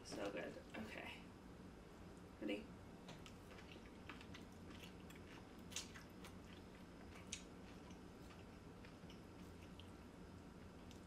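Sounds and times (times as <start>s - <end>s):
chewing noodles: 3.2s - 11.0s.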